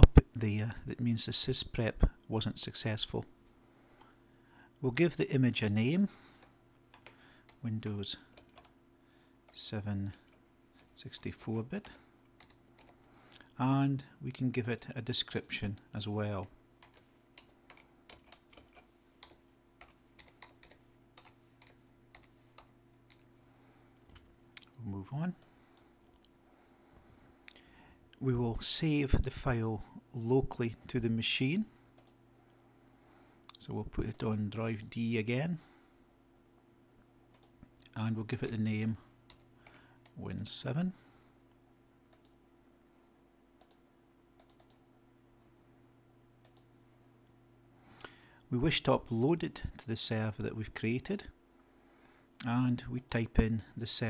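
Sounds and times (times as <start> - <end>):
low steady hum: 0.0 - 54.0
keyboard typing: 6.9 - 7.6, 8.3 - 8.8, 11.8 - 13.0, 16.8 - 23.3, 44.4 - 44.8
computer mouse clicks: 16.8 - 23.3, 32.0 - 32.2, 42.1 - 42.4, 43.6 - 43.8, 44.4 - 44.8, 46.4 - 46.7.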